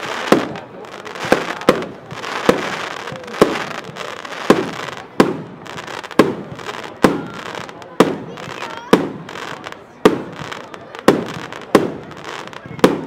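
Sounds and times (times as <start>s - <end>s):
firework reports: 0.0s - 13.0s.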